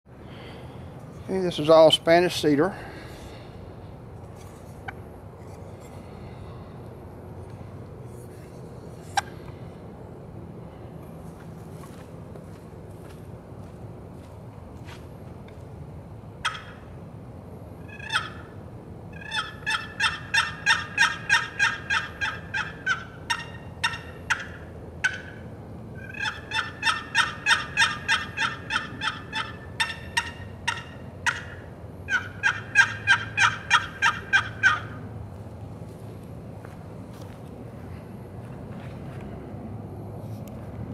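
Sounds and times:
turkey box call yelps: 16.4 - 16.9, 17.8 - 25.4, 26.0 - 35.0.

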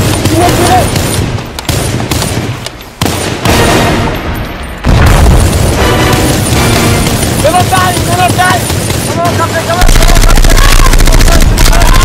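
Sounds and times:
automatic rifle fire: 4.9 - 12.0.

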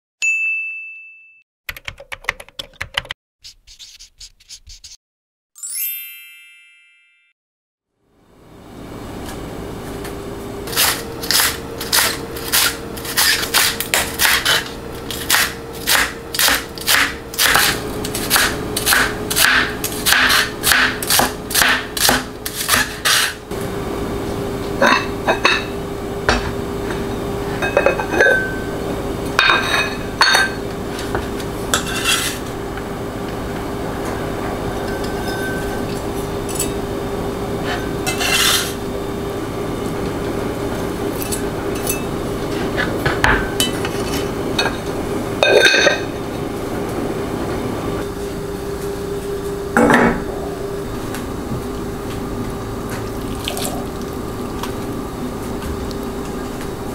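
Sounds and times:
cleaver chopping on plastic board: 15.2 - 23.3
steady hum: 23.3 - 56.9.

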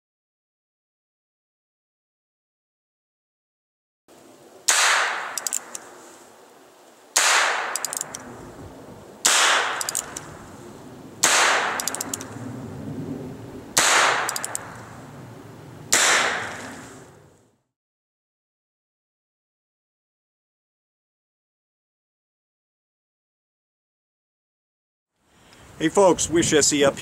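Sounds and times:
revolver shots: 15.9 - 16.8.

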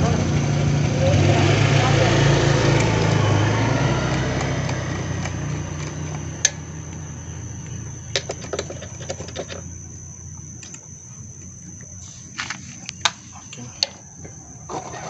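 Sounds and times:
low engine-like hum: 0.0 - 15.0.

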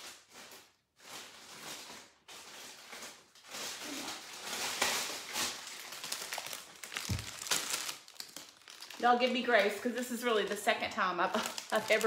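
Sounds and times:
plastic bag rustling: 0.0 - 12.0.

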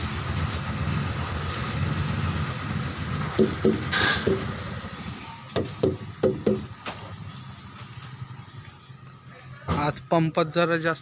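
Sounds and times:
diesel engine idling: 0.0 - 11.0
sharp ringing knocks: 5.6 - 6.7.

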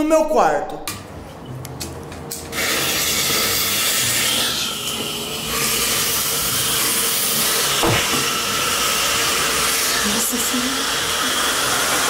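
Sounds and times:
smoke bomb hissing: 2.5 - 4.8, 5.4 - 12.0.

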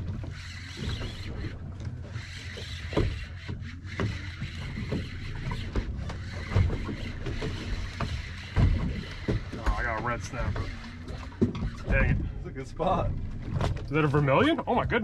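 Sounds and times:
water against boat hull: 0.0 - 15.0.

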